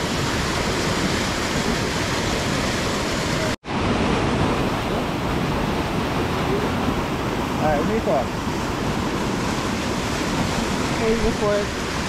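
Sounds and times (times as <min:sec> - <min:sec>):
river rapids rushing: 0:00.0 - 0:12.0.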